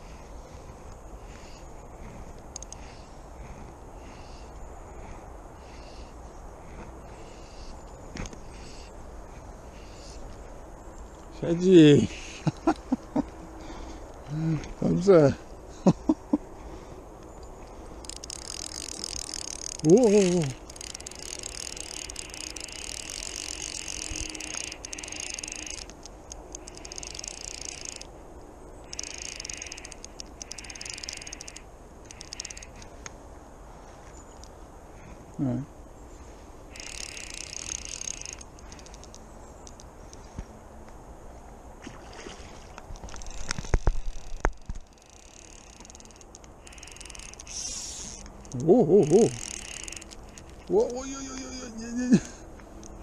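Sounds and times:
fly reel ratchet buzzing: 18.0 - 28.1, 28.8 - 32.9, 36.7 - 39.8, 43.0 - 52.1
man humming: 48.5 - 49.5, 50.7 - 52.3.

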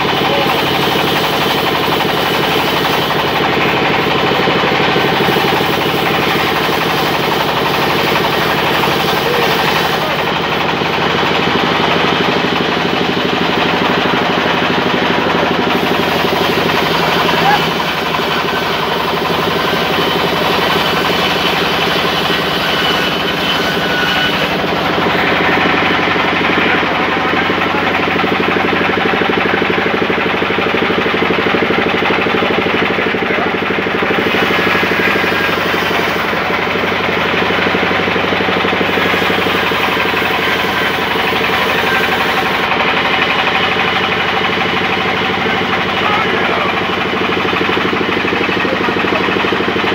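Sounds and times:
band saw mill running: 0.0 - 49.9
saw blade cutting log hiss: 0.1 - 10.6, 15.6 - 26.6, 34.0 - 36.7, 38.7 - 42.7.

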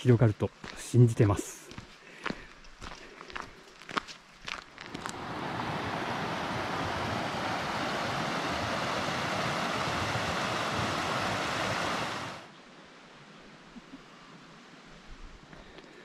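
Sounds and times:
wind rushing: 5.0 - 12.5.

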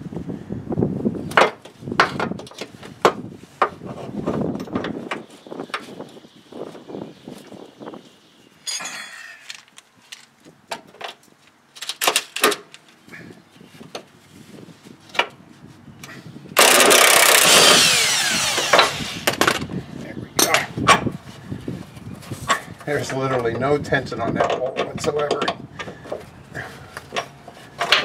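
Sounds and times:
light metal clinks and knocks: 8.6 - 10.4
impact wrench spinning: 16.6 - 19.7.

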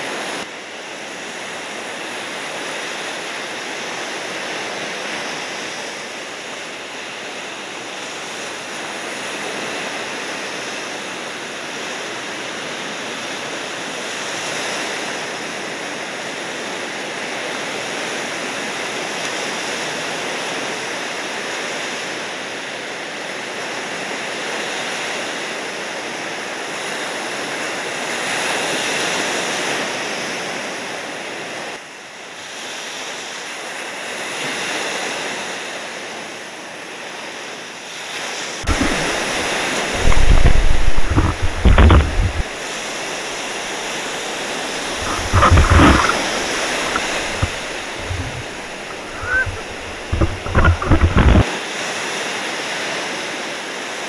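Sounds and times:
ocean surf rushing: 38.4 - 51.5.

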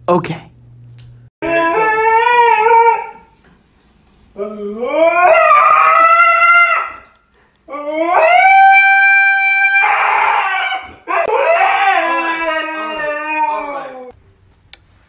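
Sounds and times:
husky howling: 1.4 - 3.4, 4.4 - 14.2.

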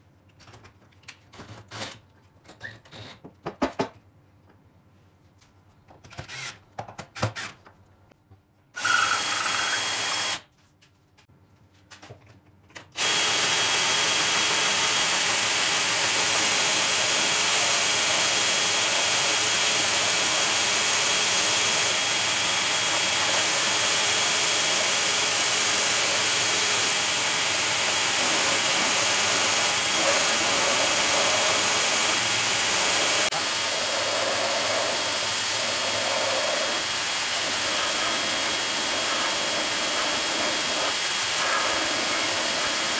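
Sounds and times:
drill driving screws into wood: 6.1 - 6.6, 7.2 - 7.6, 8.8 - 10.4, 13.0 - 42.9
drill motor high whine: 8.8 - 10.4, 13.0 - 42.9
wood block being sanded: 13.0 - 42.9.

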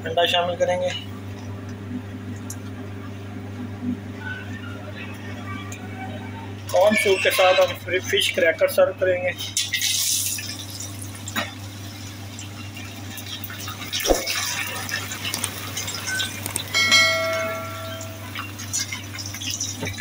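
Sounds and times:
oil sizzling in a pan: 9.6 - 20.0
ringing chime: 16.7 - 18.4.

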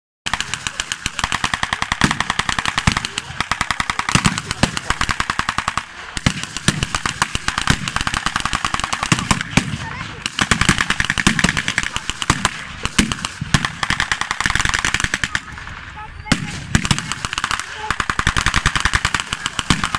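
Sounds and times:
gunshots: 0.3 - 19.9
machine-gun bursts: 0.3 - 19.9.

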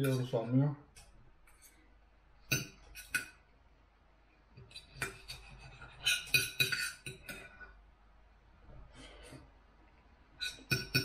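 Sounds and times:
cutlery clinking on a plate: 4.7 - 7.6.

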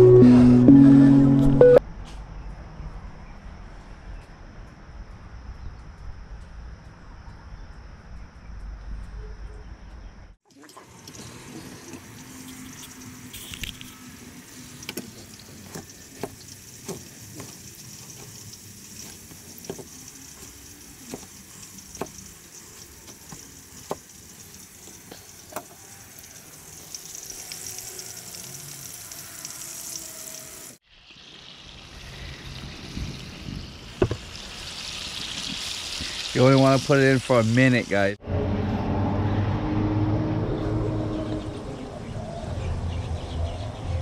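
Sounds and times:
fish frying in hot oil: 10.5 - 38.1
steady hiss: 11.2 - 38.2.

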